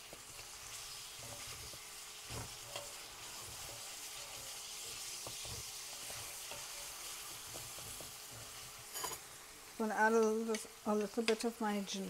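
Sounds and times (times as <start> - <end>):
onions sizzling in a frying pan: 0.0 - 12.0
wooden spatula scraping pan: 0.4 - 9.2.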